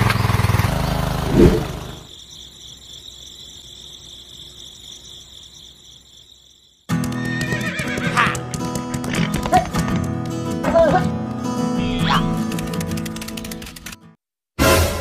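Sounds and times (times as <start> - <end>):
small engine running: 0.0 - 2.1
crickets chirring: 0.0 - 8.0.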